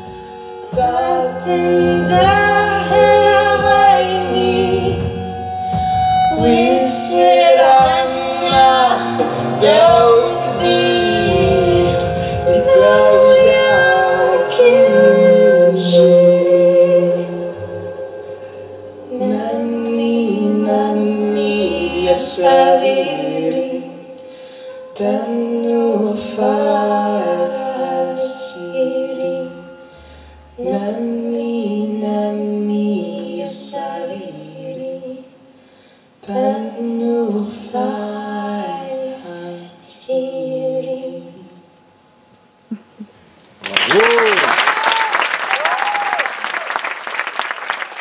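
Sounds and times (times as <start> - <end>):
women singing a lullaby: 0.0 - 5.4, 6.3 - 35.5, 36.2 - 41.8
low sustained notes: 0.0 - 33.4.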